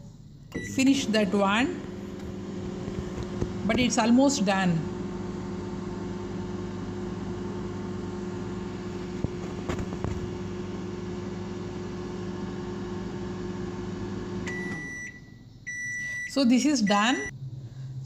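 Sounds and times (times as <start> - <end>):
microwave oven humming: 0.5 - 16.3
high beep: 14.5 - 17.3.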